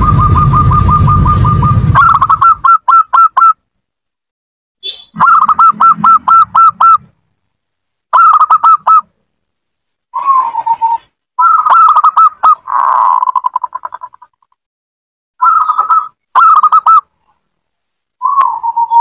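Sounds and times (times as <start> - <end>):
low rumble: 0.0 - 2.6
dove cooing: 0.0 - 3.5, 5.2 - 7.1, 8.2 - 9.1, 10.2 - 14.2, 15.4 - 17.0, 18.2 - 19.0.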